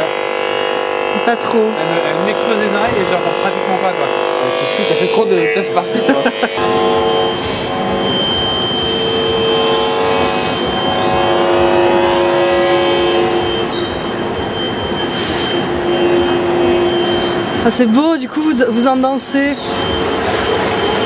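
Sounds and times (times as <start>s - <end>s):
steady whining tones: 0.0s - 21.0s
thin high whistle: 6.2s - 21.0s.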